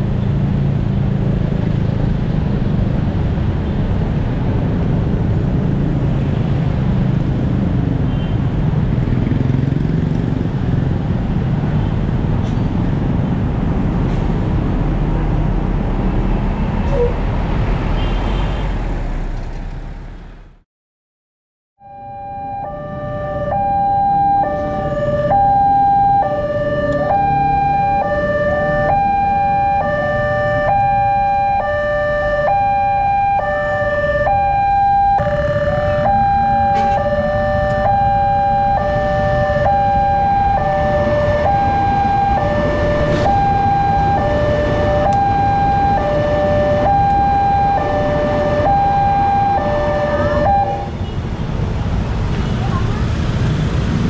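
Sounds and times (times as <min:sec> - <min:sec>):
road traffic rumble: 0:00.0 - 0:20.6, 0:21.8 - 0:54.0
level-crossing two-tone siren: 0:21.8 - 0:50.9.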